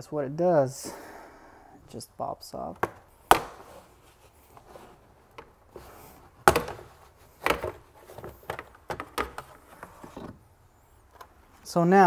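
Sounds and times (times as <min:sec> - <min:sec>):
plastic trim panel knocks and clicks: 0:06.5 - 0:07.8.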